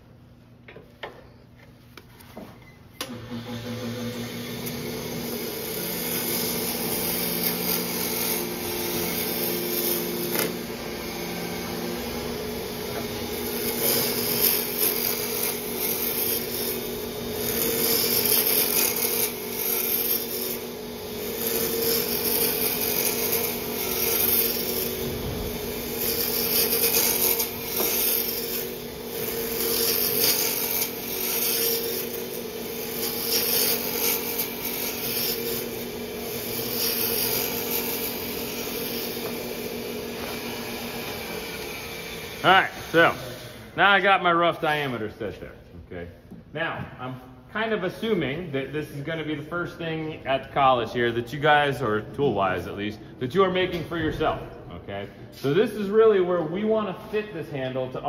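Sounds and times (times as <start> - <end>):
turning tool cutting wood: 3.0 - 43.8
wood lathe humming: 3.0 - 43.9.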